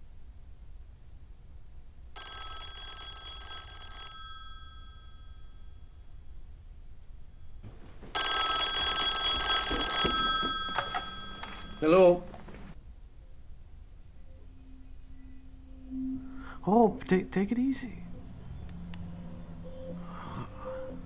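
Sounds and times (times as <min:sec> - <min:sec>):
telephone bell ringing: 0:02.2 - 0:05.9, 0:08.0 - 0:12.6.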